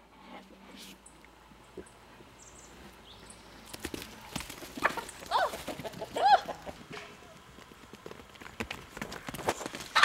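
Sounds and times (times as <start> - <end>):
goat hooves clattering on dirt: 3.6 - 10.0.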